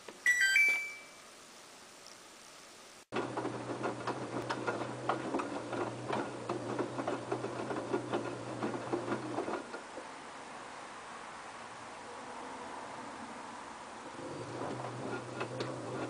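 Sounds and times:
washing machine motor hum: 3.1s - 10.1s, 14.0s - 16.0s.

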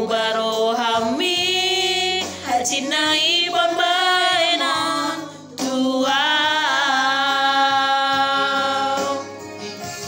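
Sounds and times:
electronic keyboard accompaniment: 0.0s - 10.0s
person singing with vibrato: 0.0s - 10.0s.

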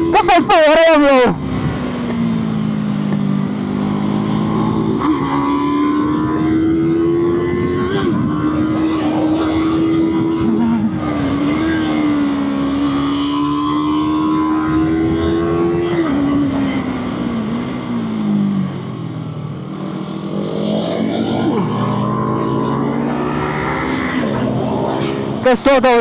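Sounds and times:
motorcycle engine revving: 0.0s - 26.0s.

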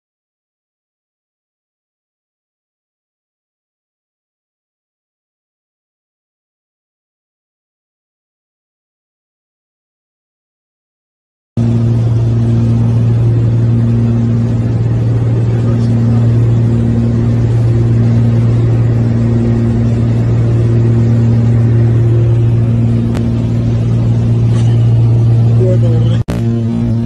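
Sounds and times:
aircraft engine droning: 11.6s - 27.0s
higher hum: 11.6s - 27.0s.

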